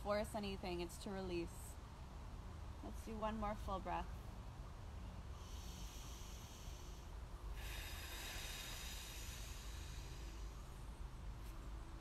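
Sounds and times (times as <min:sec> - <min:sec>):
steady low rumble: 0:00.0 - 0:12.0
woman breathing deeply: 0:05.3 - 0:11.0.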